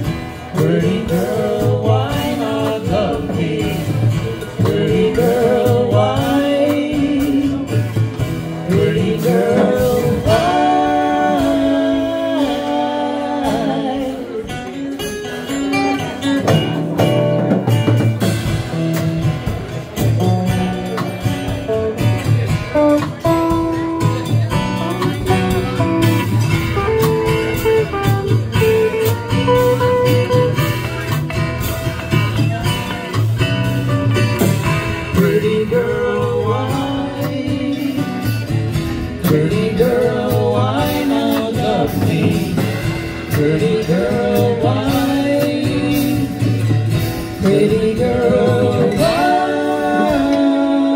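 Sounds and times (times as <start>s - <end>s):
acoustic guitar: 0.0s - 50.9s
drum kit beat: 0.0s - 50.9s
electric guitar lead: 0.0s - 50.9s
person singing: 0.4s - 15.0s, 34.7s - 50.9s.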